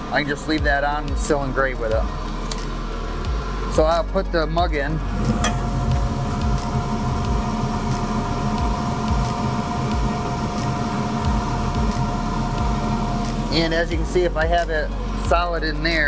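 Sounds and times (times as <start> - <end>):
machine hum with held tone: 0.0 - 16.0.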